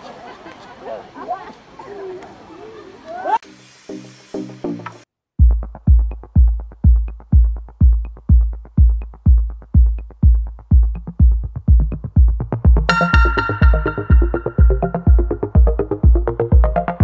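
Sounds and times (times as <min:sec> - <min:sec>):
drum-machine kick: 0:05.4 - 0:17.0
synth layer: 0:12.9 - 0:17.0.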